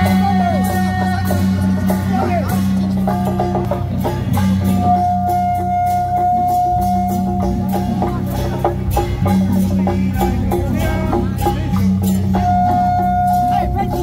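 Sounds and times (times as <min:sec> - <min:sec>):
steady drumming: 0:00.0 - 0:14.0
wind instrument playing high notes: 0:04.3 - 0:08.6, 0:10.8 - 0:14.0.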